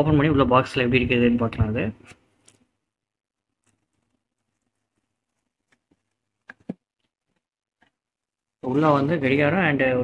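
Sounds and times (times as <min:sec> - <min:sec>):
bubble wrap rustling: 0:03.3 - 0:07.4.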